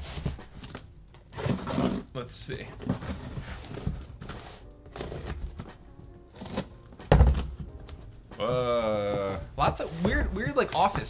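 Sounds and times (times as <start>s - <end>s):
soft background music: 0.0s - 11.0s
scraping along packing tape: 3.1s - 5.7s
cardboard box slit open: 6.4s - 6.7s
heavy cardboard thunk: 7.0s - 7.7s.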